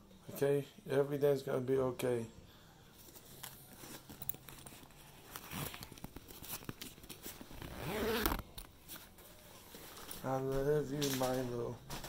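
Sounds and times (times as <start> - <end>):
phone rustling and clicking: 3.1 - 9.2.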